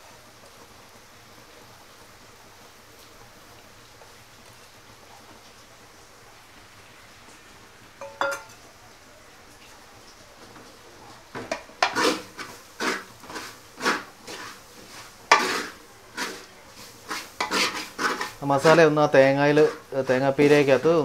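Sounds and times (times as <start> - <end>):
wooden spatula stirring in metal pot: 10.4 - 21.0.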